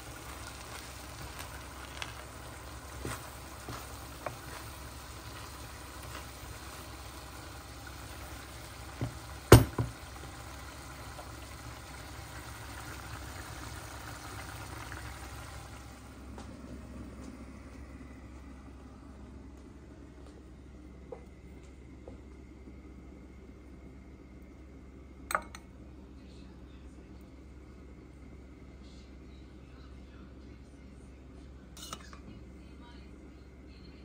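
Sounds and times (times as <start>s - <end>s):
wooden spoon stirring in pan: 0.0s - 10.2s
faint steady sizzle: 0.0s - 34.0s
spoon knocking against pan: 9.0s - 10.0s.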